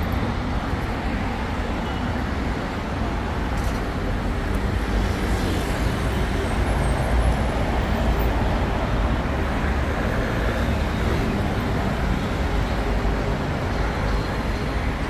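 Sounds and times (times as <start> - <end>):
road traffic rumble: 0.0 - 15.0.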